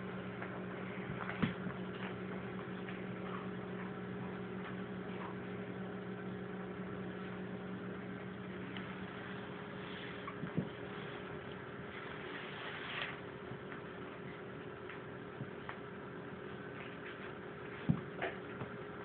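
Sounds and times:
electrical hum: 0:00.0 - 0:19.0.

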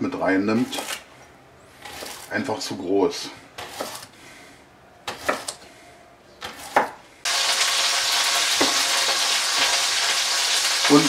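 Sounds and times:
knife chopping on wooden board: 0:00.6 - 0:01.0, 0:01.8 - 0:02.3, 0:03.6 - 0:04.1, 0:05.1 - 0:05.6, 0:06.4 - 0:07.0
meat sizzling in hot fat: 0:07.3 - 0:11.0.

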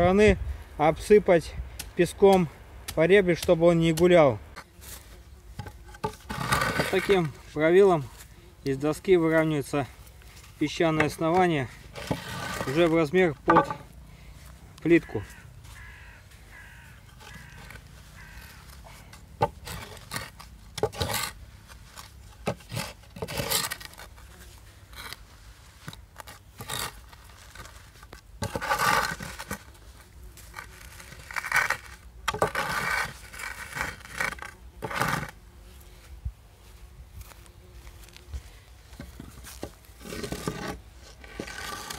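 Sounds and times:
wooden board scraping over sand: 0:04.6 - 0:09.7, 0:10.3 - 0:14.0, 0:19.4 - 0:36.0, 0:37.2 - 0:41.9.

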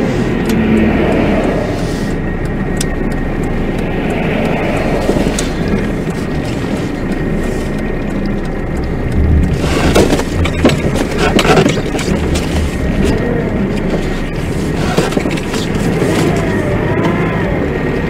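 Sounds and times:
car road and engine noise: 0:00.0 - 0:18.0
knocks and thumps: 0:09.2 - 0:13.2.

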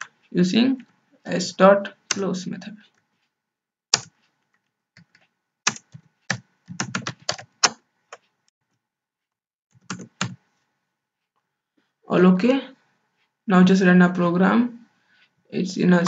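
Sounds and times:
keyboard typing clicks: 0:05.0 - 0:08.2.

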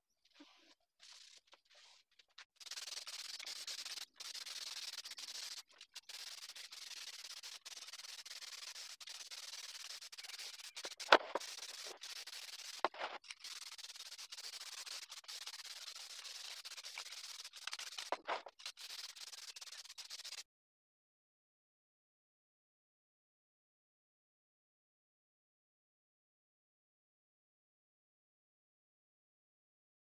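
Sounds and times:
aerosol spray can hissing: 0:01.0 - 0:20.4.

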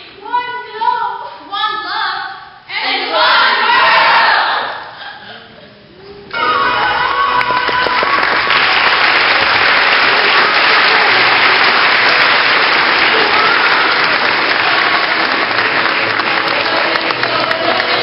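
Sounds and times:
audience applauding: 0:06.4 - 0:18.0.

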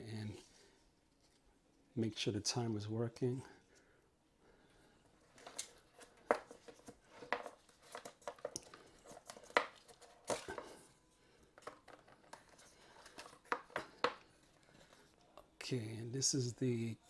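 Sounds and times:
light cardboard rustling: 0:05.2 - 0:10.8, 0:11.6 - 0:15.2.

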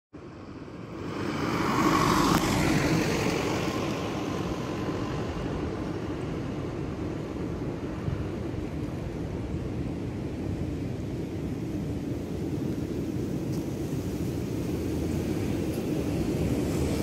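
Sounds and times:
vehicle passing: 0:00.4 - 0:08.0.

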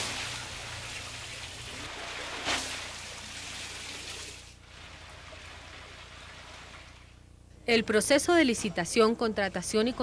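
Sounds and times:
water gushing from a pipe: 0:00.0 - 0:06.9.

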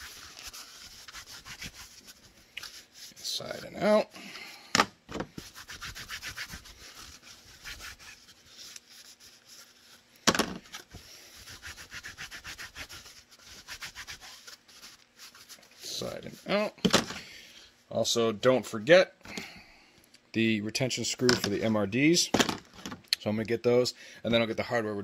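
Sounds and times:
cloth rubbing plastic: 0:00.0 - 0:04.0, 0:05.1 - 0:17.2
plastic holders knocking down: 0:04.7 - 0:05.3, 0:10.3 - 0:10.7, 0:16.8 - 0:17.2, 0:22.3 - 0:23.0.

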